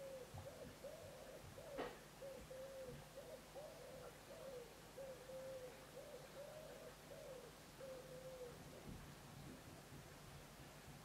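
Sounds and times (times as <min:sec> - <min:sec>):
pigeon cooing: 0:00.0 - 0:08.6.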